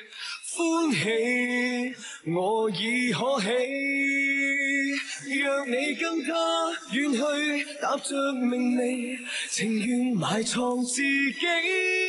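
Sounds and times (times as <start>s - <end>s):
man singing a slow ballad: 0.0s - 12.0s.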